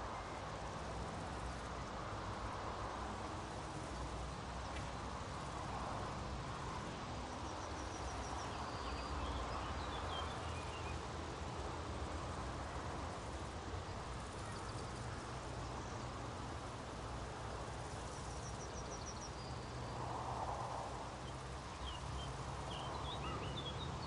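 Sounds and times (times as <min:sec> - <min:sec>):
meadow field noise hiss: 0:00.0 - 0:24.0
faint high bird chirps: 0:21.2 - 0:24.0.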